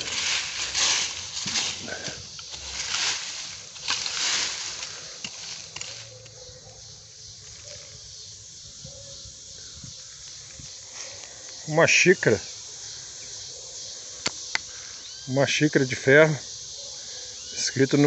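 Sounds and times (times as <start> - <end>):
hand scraping loose dirt: 0.0 - 6.4.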